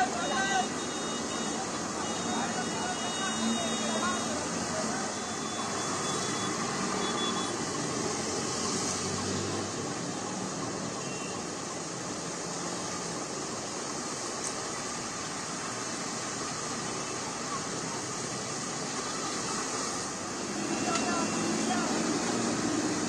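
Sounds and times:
rain and water wash: 0:00.0 - 0:23.0
vehicle engines running: 0:11.5 - 0:23.0.

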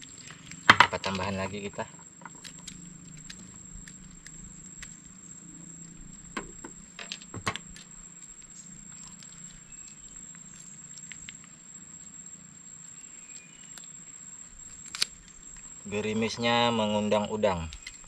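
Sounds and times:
light drizzle pattering: 0:00.0 - 0:12.2
faint high-pitched whine: 0:00.0 - 0:18.0.

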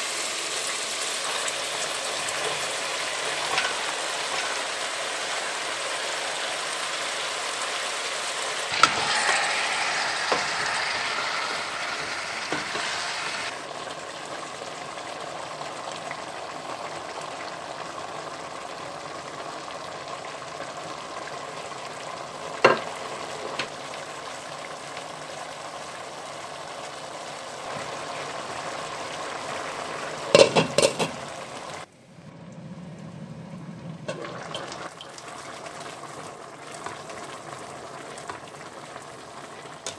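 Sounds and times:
food sizzling in hot oil: 0:00.0 - 0:31.9
knocks against metal pot: 0:30.4 - 0:31.1.

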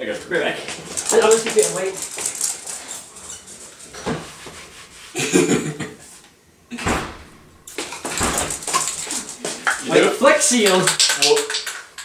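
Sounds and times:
door opening and shutting: 0:06.7 - 0:09.8.

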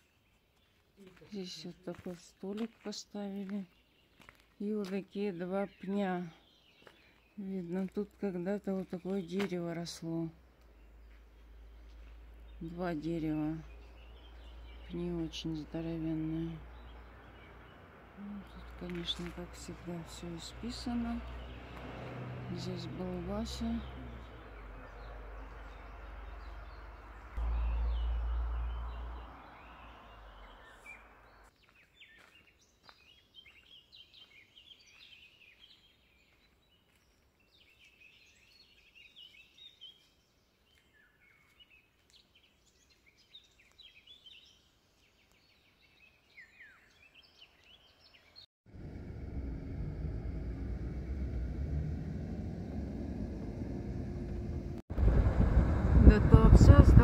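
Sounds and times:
small birds chirping: 0:00.0 - 0:54.8
car road noise: 0:16.5 - 0:31.4, 0:48.6 - 0:57.0
low rumble: 0:23.3 - 0:31.3, 0:48.7 - 0:57.0.

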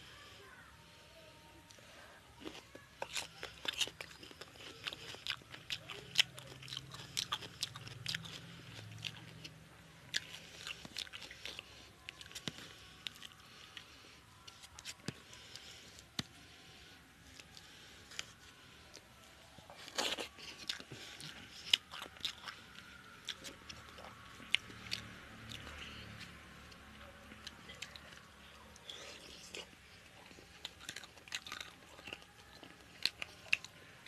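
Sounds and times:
wet chewing and mouth clicks: 0:02.4 - 0:13.9, 0:19.7 - 0:33.8.

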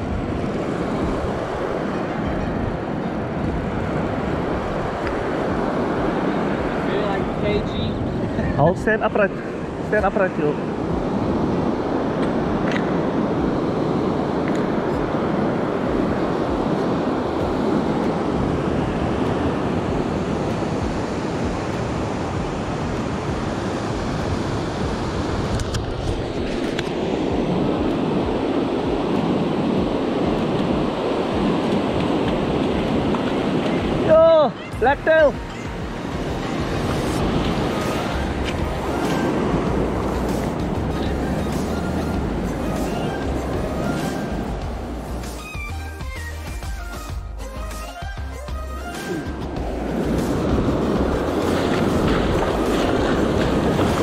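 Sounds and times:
surf breaking on beach: 0:00.0 - 0:45.5, 0:49.0 - 0:54.0
wind noise on microphone: 0:00.0 - 0:54.0.

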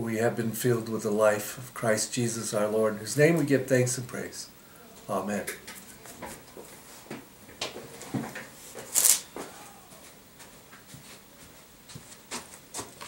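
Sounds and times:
clothing and chair rustle: 0:04.9 - 0:13.0.

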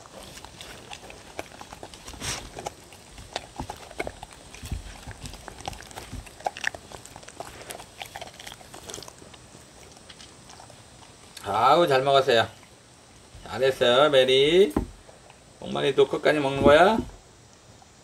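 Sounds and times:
dogs licking wooden bowls: 0:00.0 - 0:12.8.

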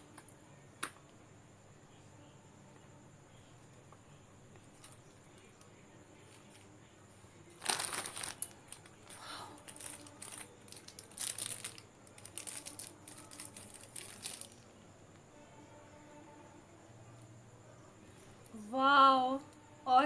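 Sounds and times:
plastic film crinkling: 0:07.5 - 0:14.6.

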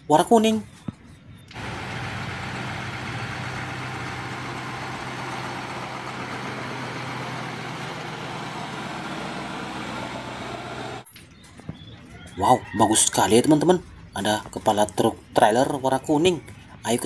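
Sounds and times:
truck diesel engine humming: 0:01.5 - 0:11.1.

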